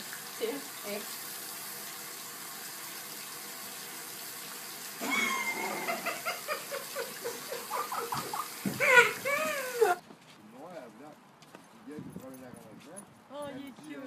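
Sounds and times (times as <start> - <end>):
pulsing laughter: 5.0 - 10.0.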